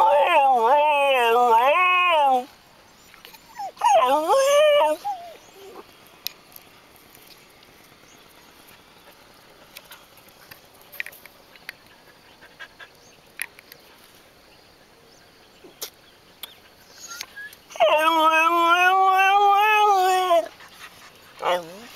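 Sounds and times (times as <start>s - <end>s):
dog howling: 0.0s - 2.5s, 3.5s - 5.8s, 17.0s - 20.5s, 21.4s - 21.9s
dogs squeaking and whimpering: 0.0s - 5.8s, 16.5s - 21.9s.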